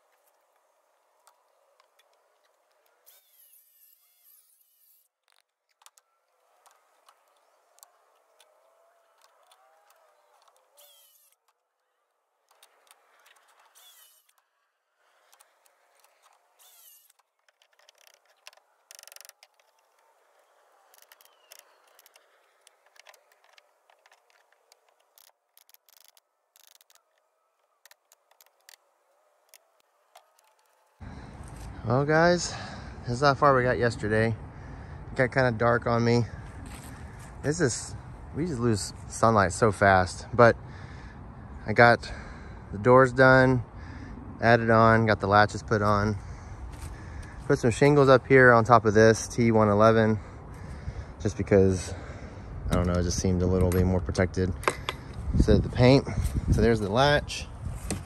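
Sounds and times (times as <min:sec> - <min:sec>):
faint irregular clicks: 0:00.0 - 0:03.6, 0:05.1 - 0:31.6.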